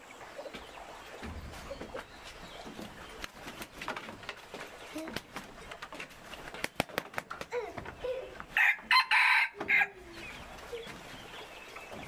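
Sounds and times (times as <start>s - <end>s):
rooster crowing: 8.6s - 9.9s.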